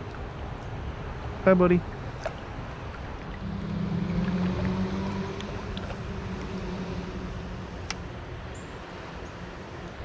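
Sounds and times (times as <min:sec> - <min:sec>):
creek rushing: 0:00.0 - 0:09.2
low hum: 0:01.8 - 0:09.7.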